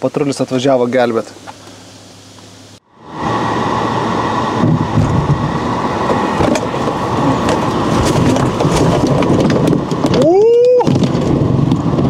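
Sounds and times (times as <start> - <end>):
off-road vehicle engine: 0.0 - 12.0
knocks and rattles: 6.1 - 12.0.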